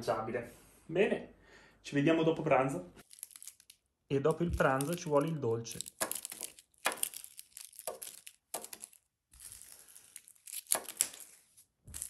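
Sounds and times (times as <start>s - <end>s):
plastic candy wrappers crinkling: 3.0s - 12.0s.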